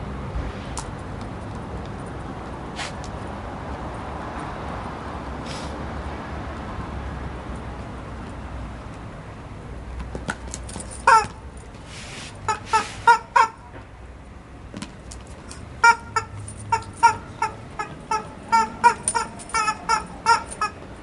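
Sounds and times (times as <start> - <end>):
steady background noise: 0.0 - 21.0
rubber chicken toy squawking: 11.0 - 11.4, 12.4 - 13.6, 15.8 - 20.8.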